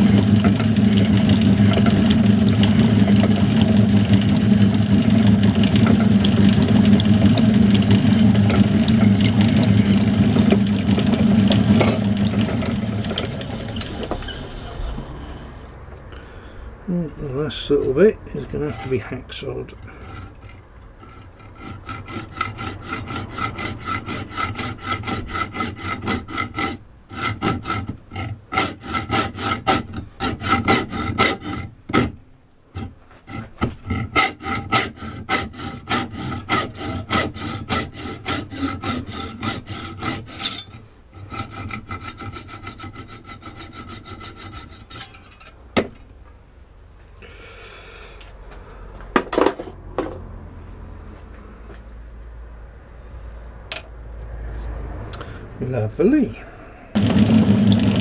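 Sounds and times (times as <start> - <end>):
hacksaw cutting metal: 5.7 - 14.6, 18.4 - 45.9.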